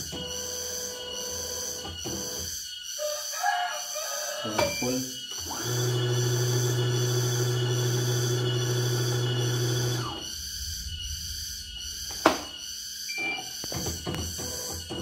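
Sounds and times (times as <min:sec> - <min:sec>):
embroidery machine motor humming: 0:04.8 - 0:10.2.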